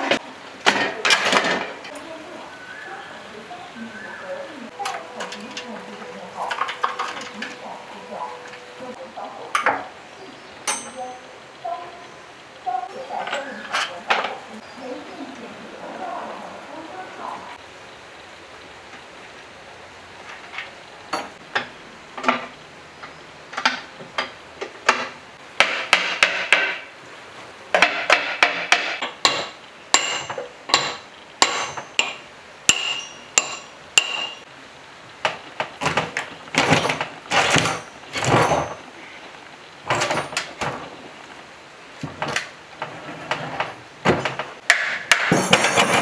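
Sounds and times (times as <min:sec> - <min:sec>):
metal scraping: 0:04.7 - 0:09.9.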